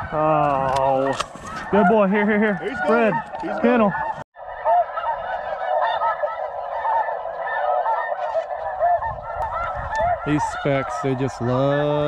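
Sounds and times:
snow geese honking: 0.0 - 12.0.

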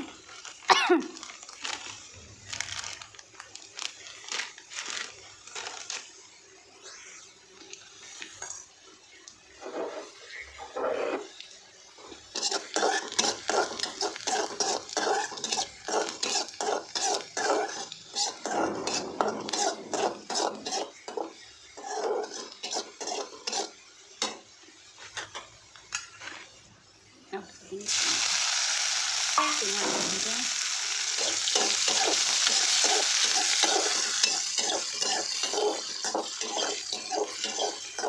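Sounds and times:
onions frying in oil: 0.0 - 38.0
metal spatula scraping a pan: 9.5 - 11.4, 12.3 - 24.4, 25.0 - 26.6, 31.2 - 38.0.

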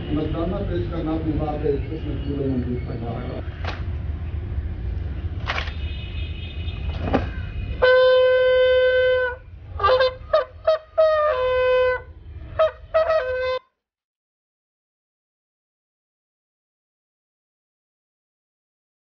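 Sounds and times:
bugle call: 7.8 - 13.6.

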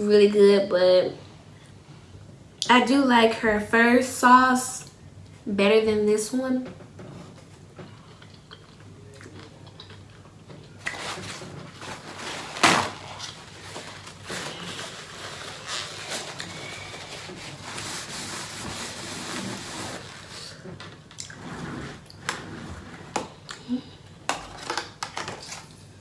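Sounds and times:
mouth eating sounds: 7.9 - 11.0
paper towels rustling: 10.8 - 20.6.

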